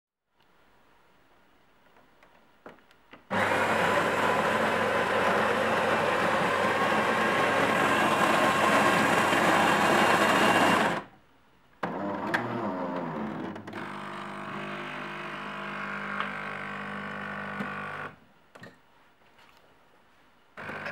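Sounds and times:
coffee grinder grinding: 3.3 - 11.1, 13.8 - 18.2, 20.6 - 20.9.

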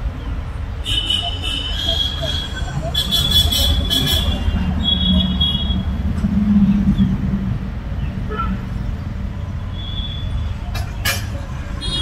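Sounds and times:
road traffic rumble: 0.0 - 12.0.

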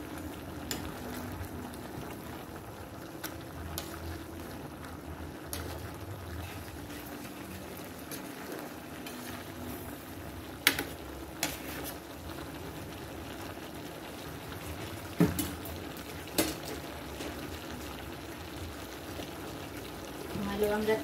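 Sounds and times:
pot bubbling on stove: 0.0 - 21.0.

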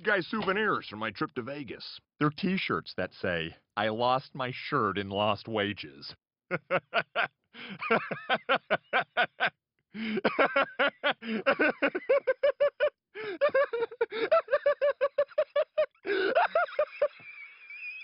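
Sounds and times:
man laughing heartily: 6.5 - 18.0.

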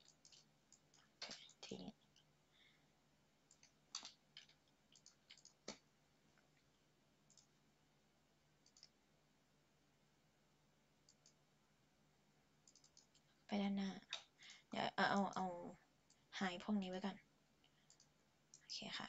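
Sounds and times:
computer mouse clicks: 0.0 - 2.3, 3.5 - 5.9, 7.3 - 7.5, 8.6 - 9.0, 11.0 - 11.4, 12.6 - 13.3, 17.7 - 18.7
faint low hum: 0.0 - 19.0.

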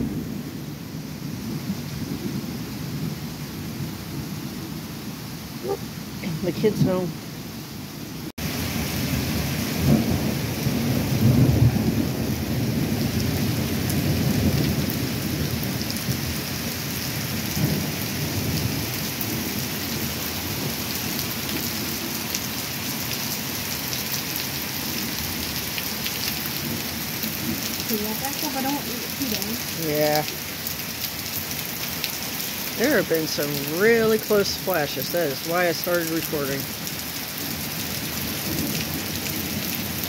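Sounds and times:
steady rain: 0.0 - 40.0
thunder rumbling: 8.5 - 22.2.

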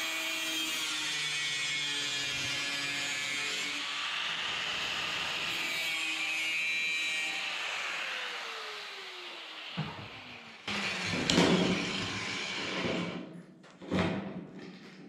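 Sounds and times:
angle grinder winding down: 7.2 - 13.1.

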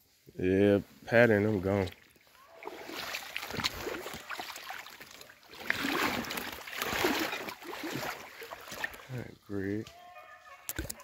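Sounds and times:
footsteps wading through water: 1.4 - 9.5.

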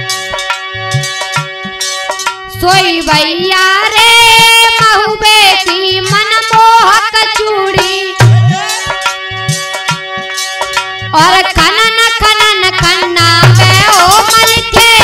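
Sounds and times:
hand-drum beats: 0.0 - 15.0
high wavering melody: 8.0 - 10.6.

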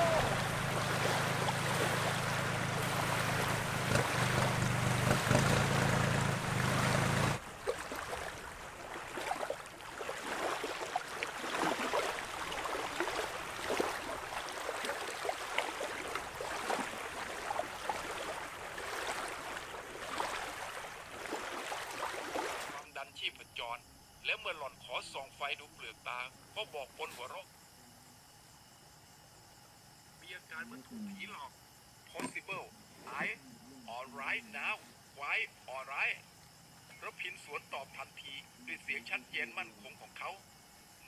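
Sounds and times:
loud rush with low hum: 0.0 - 7.4
small splashes: 0.0 - 22.8
small waves lapping: 0.0 - 22.9.

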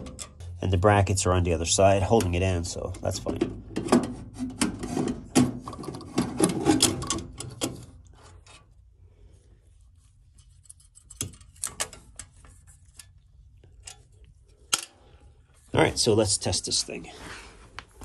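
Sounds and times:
metal rubbing and scraping: 3.7 - 9.0, 9.6 - 14.8.

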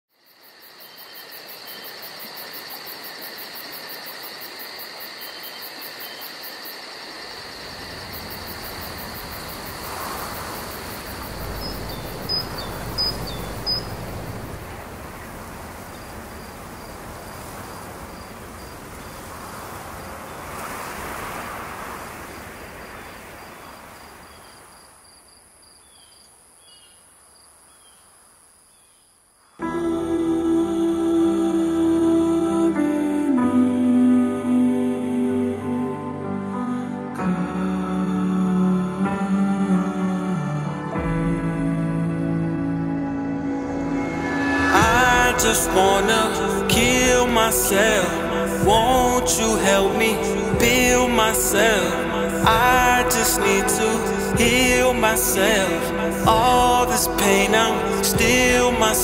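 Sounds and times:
insects chirring: 0.1 - 29.6
low rumble: 10.8 - 15.8, 43.4 - 48.0.

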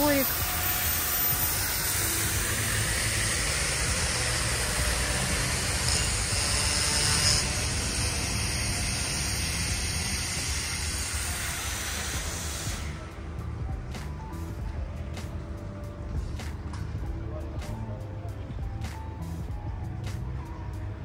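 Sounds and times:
rushing hiss: 0.0 - 13.0.

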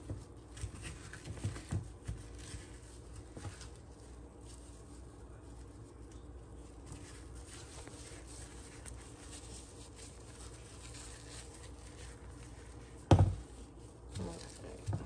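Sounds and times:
wipe rubbing on plastic: 0.0 - 14.9.

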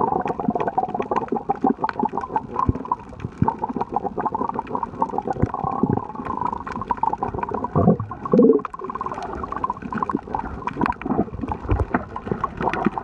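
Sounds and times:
underwater gurgling and bubbling: 0.0 - 13.0.

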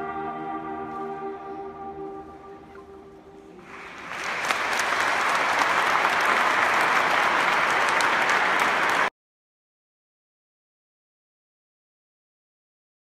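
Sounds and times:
choir holding chord: 0.0 - 4.1
audience applauding: 3.6 - 9.1.

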